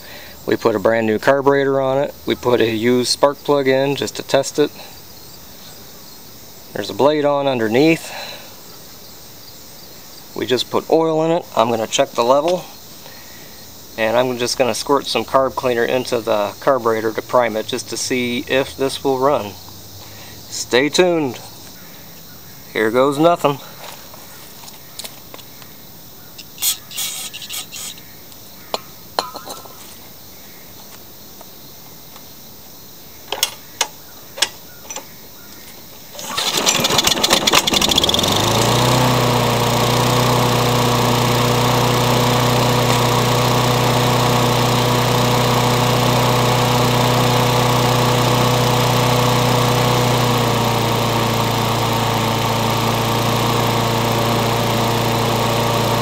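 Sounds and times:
lawn mower engine running: 6.8 - 8.6, 10.5 - 21.5, 36.1 - 56.0
short sprays: 26.4 - 28.0
recoil starter pull: 36.1 - 56.0.

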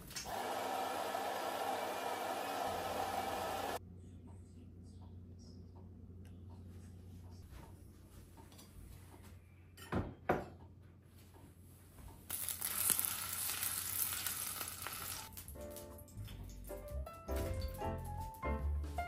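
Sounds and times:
food sizzling in a pan: 12.3 - 15.4
music: 15.3 - 19.0.

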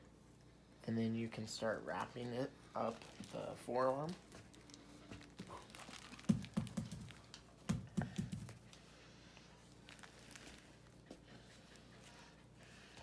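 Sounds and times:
bandage handling noise: 2.7 - 8.8, 9.6 - 11.2
faint rustling: 8.6 - 13.0.

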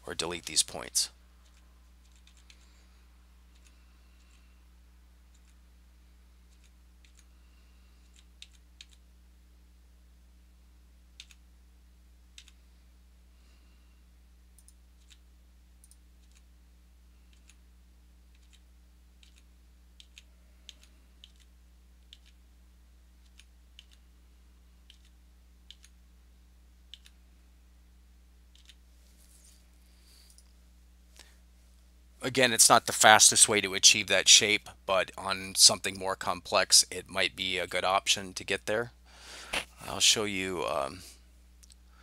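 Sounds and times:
faint low hum: 0.0 - 42.0
mouse and keyboard clicks: 28.5 - 28.8.

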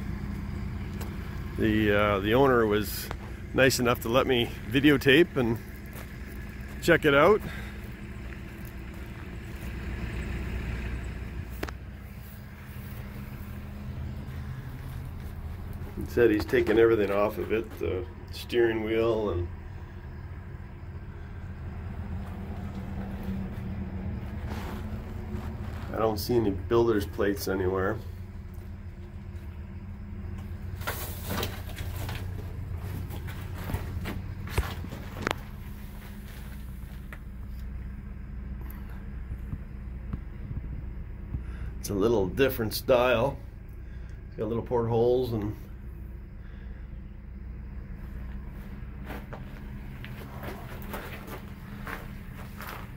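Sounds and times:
engine idling hum: 0.0 - 52.9
scuffs and knocks: 22.2 - 26.2, 48.2 - 52.9.

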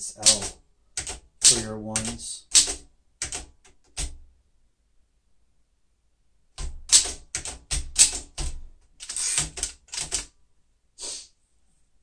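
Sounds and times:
manual typewriter keystrokes: 0.1 - 4.2, 6.6 - 10.3.

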